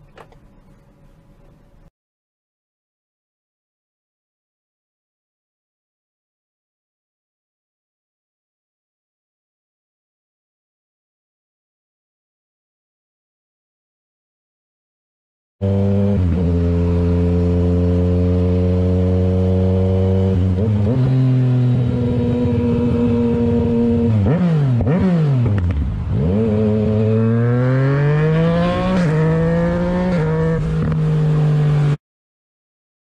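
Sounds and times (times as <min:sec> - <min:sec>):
motorcycle engine revving: 0:15.6 - 0:32.0.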